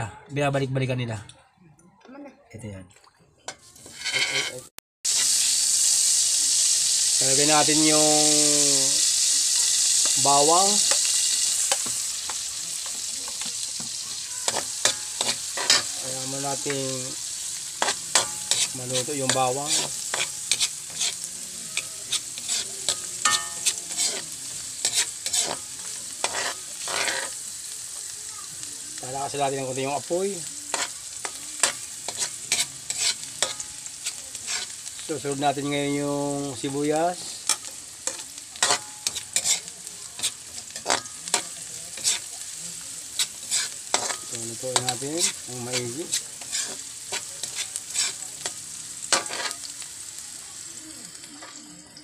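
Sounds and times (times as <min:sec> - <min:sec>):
metal ladle scraping a wok: 0:03.5 - 0:05.8, 0:09.0 - 0:16.7, 0:17.5 - 0:27.4, 0:30.7 - 0:35.0, 0:37.4 - 0:49.7
garlic sizzling in oil: 0:03.5 - 0:52.0.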